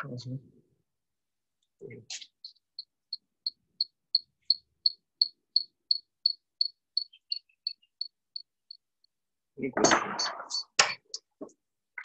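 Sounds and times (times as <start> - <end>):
insect chirping: 2.4 - 8.9.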